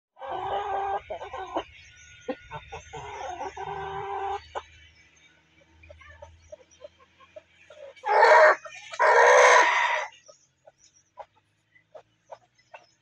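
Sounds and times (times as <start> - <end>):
chicken clucking: 0.2 - 4.8, 5.8 - 13.0
chickens calling: 0.2 - 4.9, 5.9 - 13.0.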